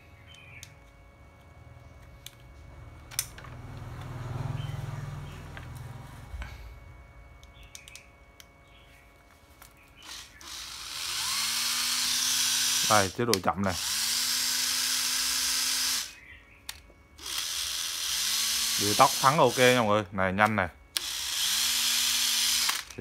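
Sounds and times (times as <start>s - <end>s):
drill motor whining: 9.9s - 16.2s, 17.2s - 20.1s, 20.9s - 23.0s.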